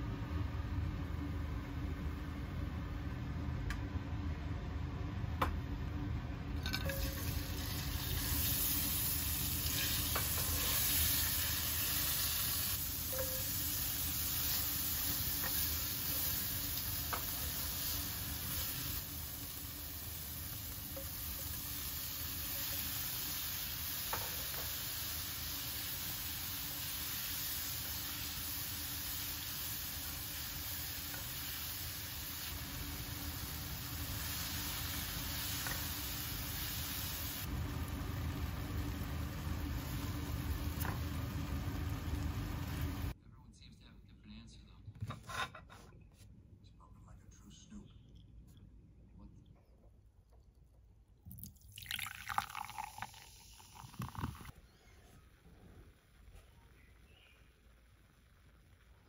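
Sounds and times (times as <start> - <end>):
food sizzling in frying pan: 6.6 - 43.2.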